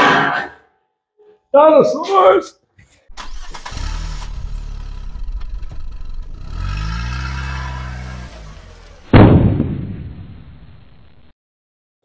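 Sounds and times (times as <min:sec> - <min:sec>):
engine revving: 0:03.1 - 0:09.1
explosion boom: 0:09.1 - 0:11.0.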